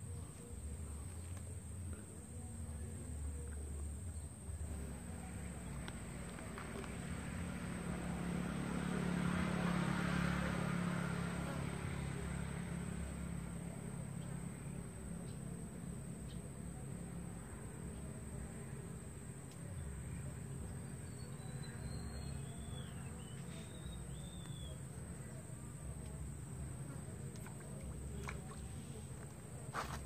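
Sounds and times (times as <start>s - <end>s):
engine passing by: 4.7s - 16.0s, 19.8s - 30.0s.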